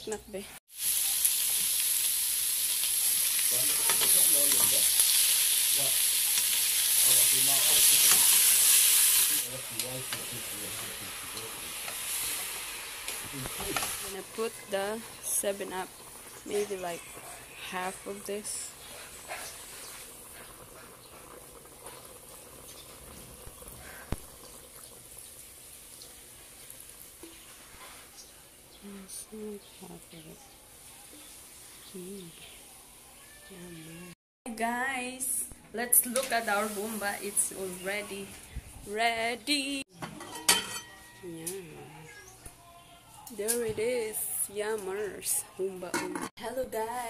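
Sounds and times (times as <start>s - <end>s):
pork sizzling in a pot: 0.0s - 28.8s, 29.7s - 33.9s, 35.8s - 38.7s
soda trickling and fizzing: 0.7s - 28.7s.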